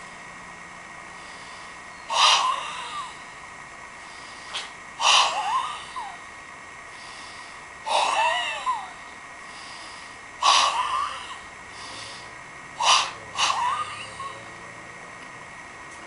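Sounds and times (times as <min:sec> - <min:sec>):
forceful breath bursts: 0:04.0 - 0:06.2, 0:06.9 - 0:14.4.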